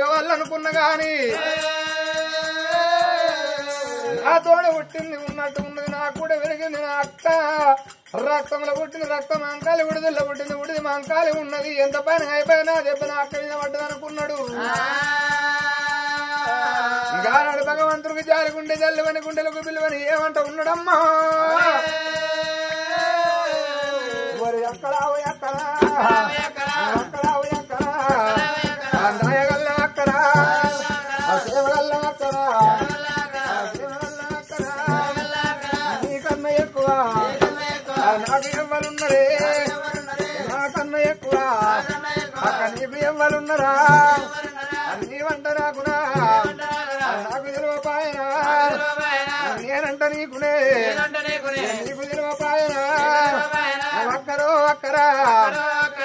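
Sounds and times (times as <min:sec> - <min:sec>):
hand drum beat: 0:00.0 - 0:17.5, 0:23.6 - 0:55.6
jingling ankle bells: 0:00.0 - 0:56.0
person singing: 0:21.4 - 0:56.0.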